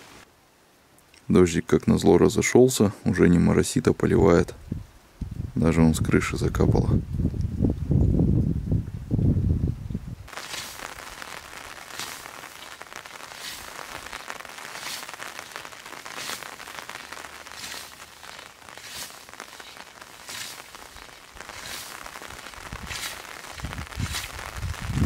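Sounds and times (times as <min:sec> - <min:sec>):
rain hiss: 0:00.0 - 0:01.2, 0:10.2 - 0:25.0
scythe swishing through grass: 0:10.3 - 0:10.9, 0:12.0 - 0:12.7, 0:13.3 - 0:13.9, 0:14.8 - 0:15.2, 0:16.1 - 0:24.6.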